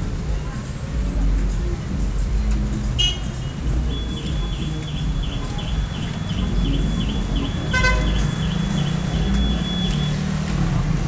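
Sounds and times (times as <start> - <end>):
low rumble of traffic: 0.0 - 11.0
high even chirping: 3.9 - 10.2.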